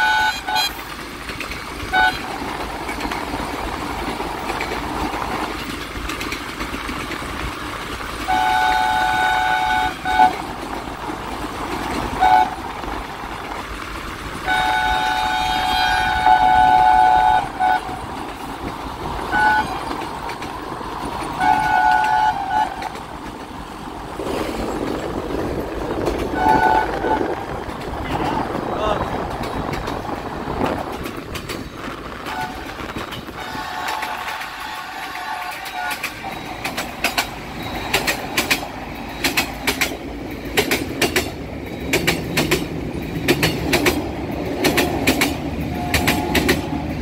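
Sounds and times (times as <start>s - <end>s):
locomotive horn blasts: 0.0s - 0.8s, 1.9s - 2.4s, 8.3s - 10.4s, 12.2s - 12.7s, 14.4s - 18.0s, 19.3s - 19.9s, 21.4s - 22.9s, 26.3s - 27.4s, 32.2s - 36.5s, 45.7s - 46.8s
train running noise: 0.0s - 47.0s.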